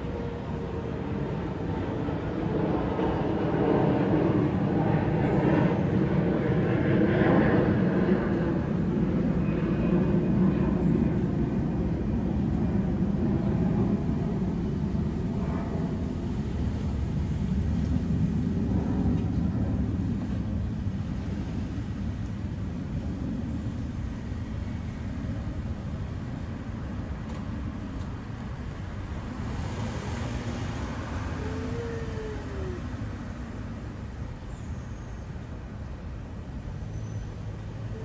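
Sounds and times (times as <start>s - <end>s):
street traffic rumble: 0.0s - 38.0s.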